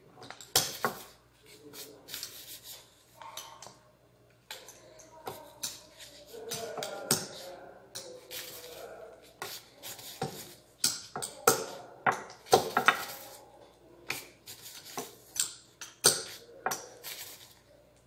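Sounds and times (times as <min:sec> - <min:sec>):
rolling pin rolling dough: 0:00.5 - 0:03.2, 0:05.2 - 0:17.6
dough sheet rustling: 0:08.2 - 0:10.7, 0:12.4 - 0:13.5, 0:14.1 - 0:15.3, 0:16.2 - 0:17.7.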